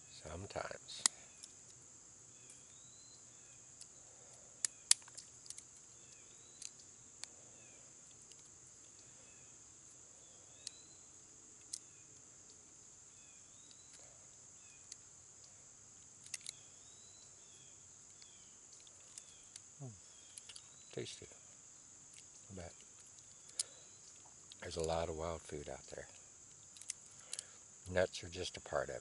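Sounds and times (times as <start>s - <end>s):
high insect drone: 0.0s - 29.0s
nutshells cracking by hand: 1.0s - 1.8s, 3.7s - 7.4s, 8.0s - 9.2s, 9.8s - 10.8s, 11.5s - 12.8s, 13.5s - 16.8s, 18.0s - 21.2s, 22.0s - 25.0s, 26.0s - 28.0s
bird chirps: 2.3s - 5.0s, 5.9s - 7.9s, 8.8s - 12.2s, 13.1s - 15.5s, 16.3s - 21.4s.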